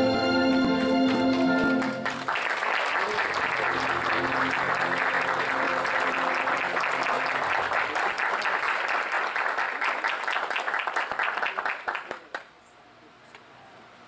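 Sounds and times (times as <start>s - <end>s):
music held notes: 0.0s - 2.2s, 3.3s - 7.6s
audience applauding: 0.4s - 12.5s.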